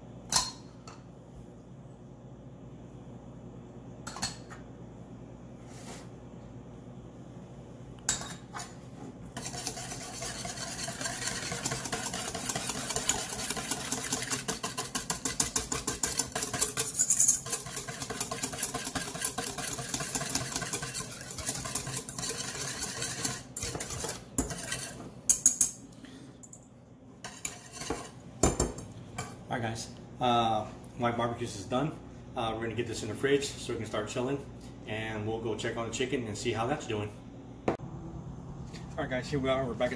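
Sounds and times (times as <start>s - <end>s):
whisk beating in metal bowl: 9.4s - 25.6s, 27.2s - 28.2s.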